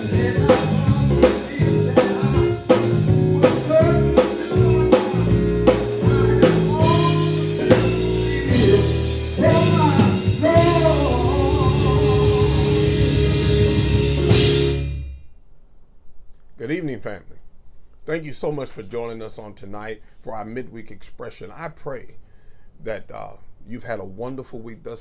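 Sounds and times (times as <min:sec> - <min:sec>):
drum kit beat: 0:00.0 - 0:15.2
electric bass guitar: 0:00.0 - 0:15.2
keyboard chords: 0:00.0 - 0:15.3.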